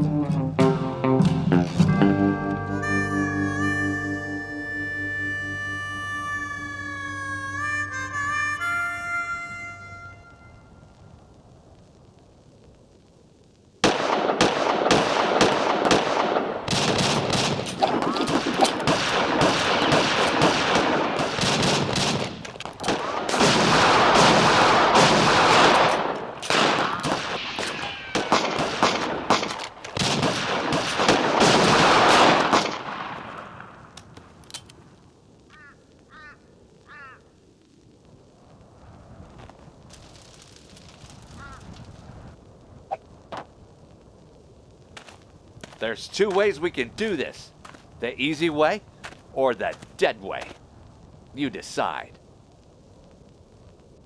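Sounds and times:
rapid revolver gunfire: 0:13.8 - 0:33.3.

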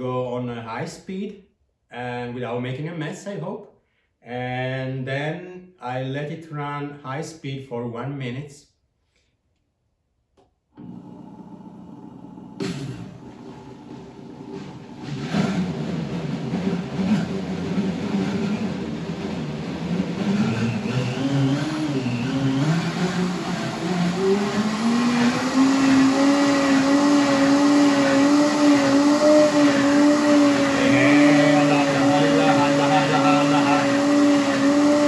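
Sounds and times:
blender motor running: 0:10.8 - 0:35.0.

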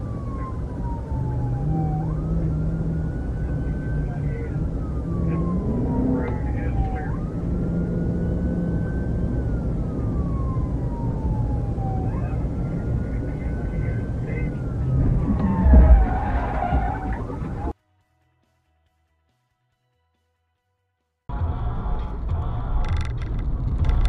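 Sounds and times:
car engine and road noise: 0:00.0 - 0:17.8, 0:21.3 - 0:24.0
police siren wailing: 0:00.0 - 0:17.8.

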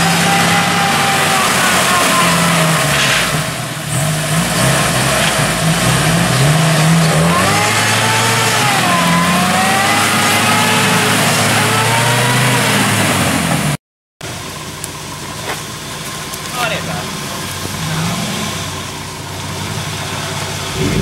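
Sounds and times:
tyres spinning in mud: 0:00.0 - 0:13.7
engines revving: 0:00.0 - 0:21.0.

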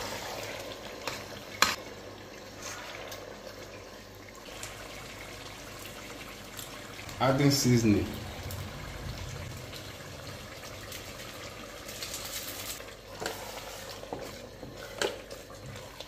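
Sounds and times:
sauce simmering in pot: 0:00.0 - 0:16.0
wooden spatula stirring: 0:13.1 - 0:16.0.

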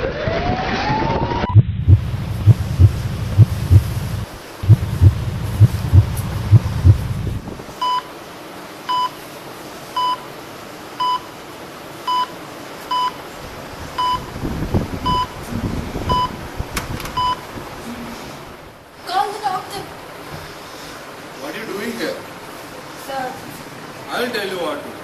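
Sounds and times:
heart monitor beeping: 0:01.4 - 0:08.1, 0:14.0 - 0:14.3, 0:15.0 - 0:15.4, 0:16.1 - 0:16.4, 0:17.2 - 0:17.4
heartbeat thumps: 0:01.5 - 0:07.7.

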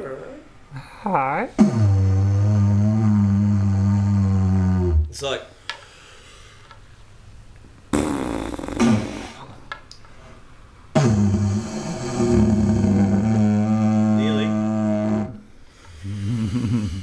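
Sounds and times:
breathy didgeridoo blast: 0:01.6 - 0:05.2, 0:11.0 - 0:17.0
didgeridoo low drone: 0:01.6 - 0:05.2, 0:11.0 - 0:17.0.

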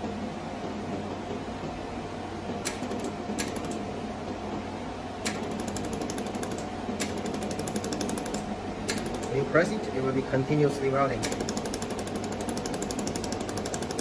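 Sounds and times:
cooling machine hum: 0:00.0 - 0:14.0
laser welder clicking: 0:02.6 - 0:03.8, 0:05.2 - 0:09.4, 0:11.2 - 0:14.0.

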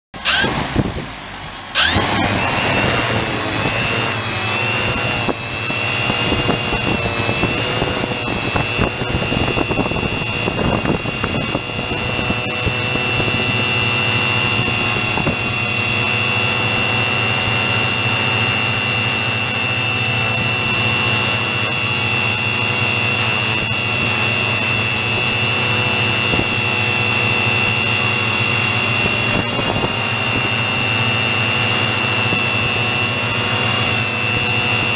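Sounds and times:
drone propellers whining: 0:00.1 - 0:34.9.

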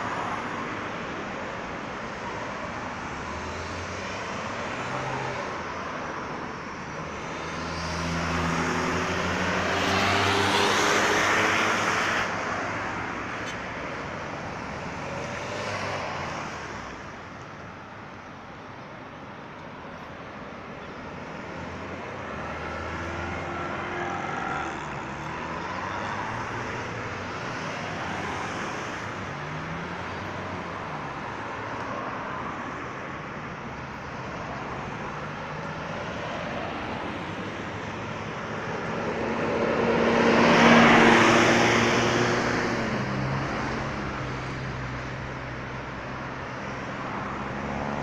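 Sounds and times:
road traffic: 0:00.0 - 0:48.0
vehicle passing close by: 0:07.3 - 0:12.8, 0:38.5 - 0:44.9.

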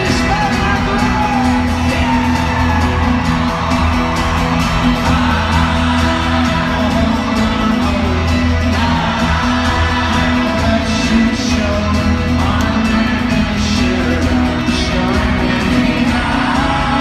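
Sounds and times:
crowd whooping: 0:00.0 - 0:11.8
live folk rock band playing: 0:00.0 - 0:17.0.

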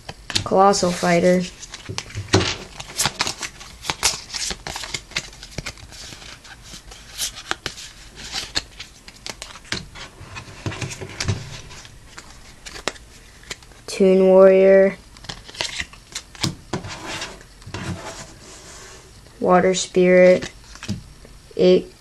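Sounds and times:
cards clicking and sliding: 0:00.1 - 0:13.7, 0:15.2 - 0:18.4.

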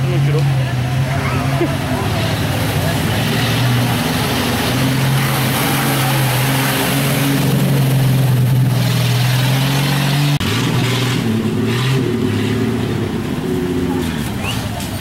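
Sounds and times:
different engine: 0:00.0 - 0:15.0
engine running under load: 0:00.0 - 0:15.0
water splashing: 0:02.0 - 0:10.4.

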